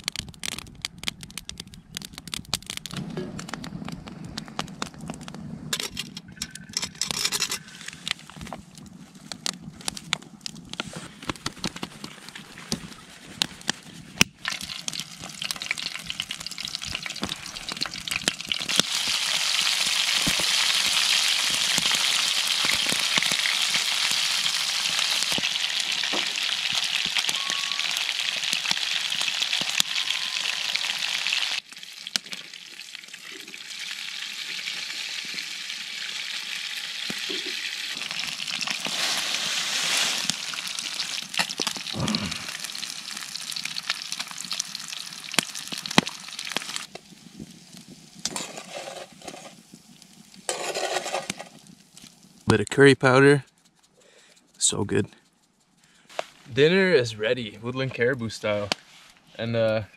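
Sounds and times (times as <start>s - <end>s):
fish sizzling in a pan: 14.4s - 52.5s.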